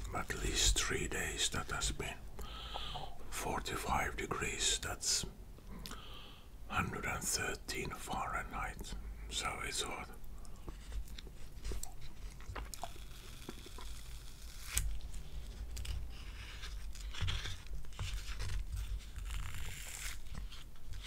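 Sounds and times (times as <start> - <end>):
close chewing: 10.4 - 18.3.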